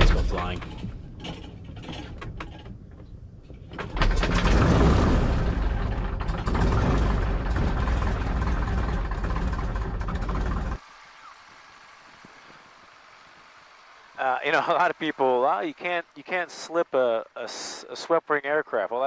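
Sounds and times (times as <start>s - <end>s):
airplane engine rumbling: 0.0s - 16.5s.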